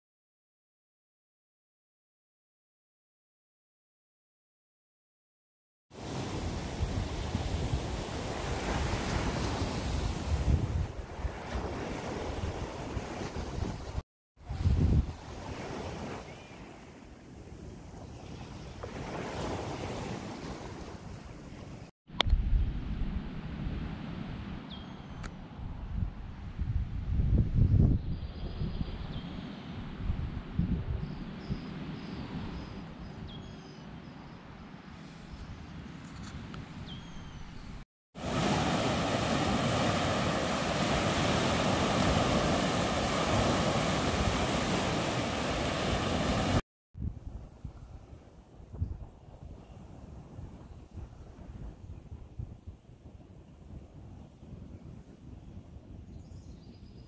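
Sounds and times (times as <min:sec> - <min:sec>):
waves washing ashore: 0:05.9 - 0:21.9, 0:38.2 - 0:46.6
wind rumbling on microphone: 0:06.0 - 0:57.0.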